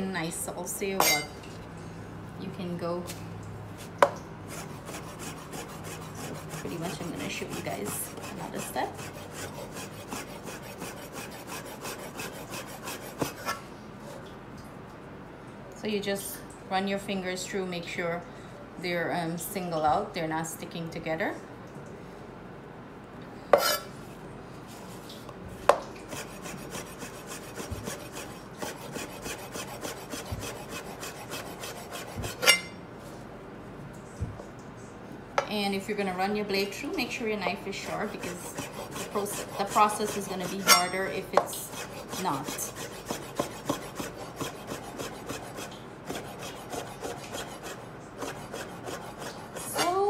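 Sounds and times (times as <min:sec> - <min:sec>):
knife slicing dough on board: 0:03.8 - 0:13.6, 0:23.5 - 0:23.9, 0:25.7 - 0:32.8, 0:37.7 - 0:50.0.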